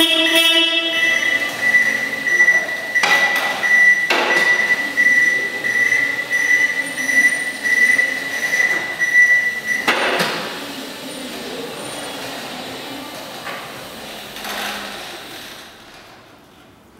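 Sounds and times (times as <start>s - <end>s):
forklift warning beeper: 0.0s - 10.1s.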